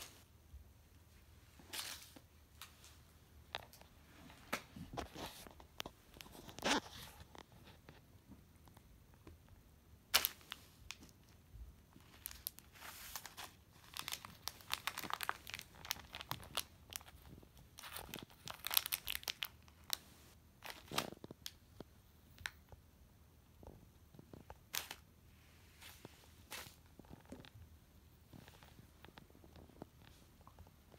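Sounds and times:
plastic packet crinkling: 0:12.0 - 0:20.0, 0:20.6 - 0:21.6, 0:24.4 - 0:25.0.

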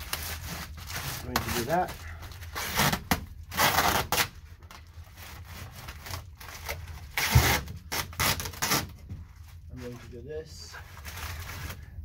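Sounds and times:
crinkly foil being rubbed: 0:00.0 - 0:04.4, 0:09.5 - 0:11.9
tape ripping off roll: 0:02.4 - 0:04.4, 0:05.2 - 0:09.0.

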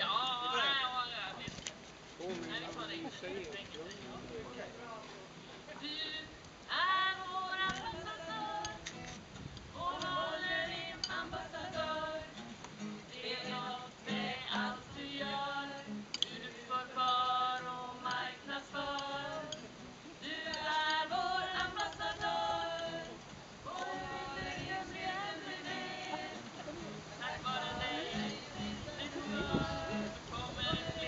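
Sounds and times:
acoustic guitar: 0:00.0 - 0:31.0
group of women singing: 0:05.8 - 0:08.8, 0:09.7 - 0:12.4, 0:13.1 - 0:31.0.

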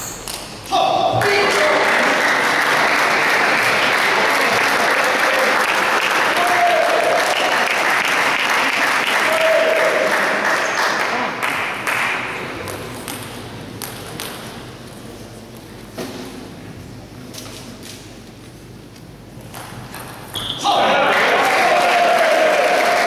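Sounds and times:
audience applauding: 0:01.2 - 0:12.2, 0:20.8 - 0:23.0.

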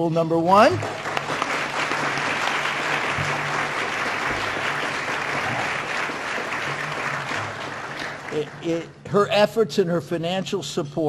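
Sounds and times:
audience applauding: 0:00.6 - 0:08.9.

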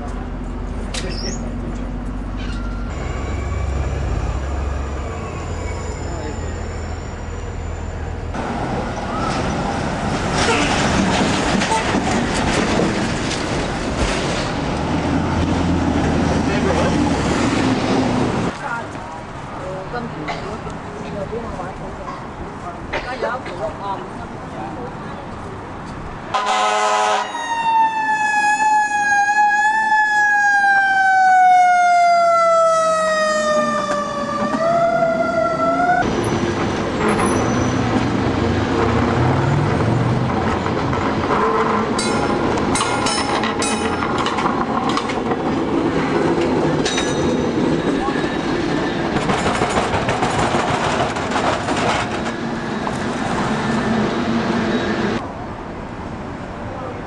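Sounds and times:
cable car rumble: 0:00.0 - 0:26.2, 0:33.8 - 0:57.0
street traffic noise: 0:00.0 - 0:57.0
siren wailing: 0:26.8 - 0:36.0.

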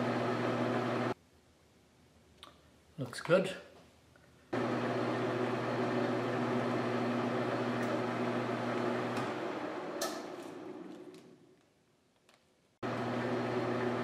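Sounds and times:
metal lathe humming: 0:00.0 - 0:01.2, 0:04.6 - 0:11.0, 0:12.8 - 0:14.0.

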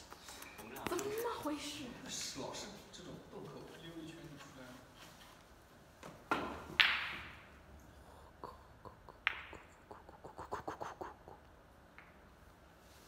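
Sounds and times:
cue tip striking ball: 0:06.3 - 0:07.5, 0:09.2 - 0:09.7
billiard balls clacking: 0:06.3 - 0:07.6, 0:09.0 - 0:10.1
balls clicking as they settle: 0:08.8 - 0:10.2.

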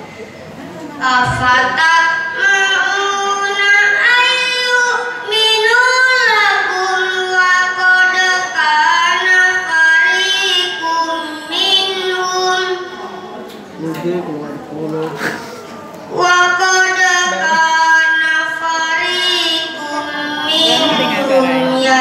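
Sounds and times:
boy reciting melodically: 0:00.8 - 0:22.0.

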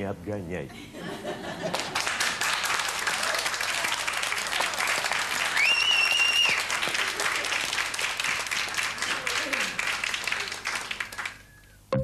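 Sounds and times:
audience applauding: 0:01.6 - 0:11.7
high whistle: 0:05.6 - 0:06.6.

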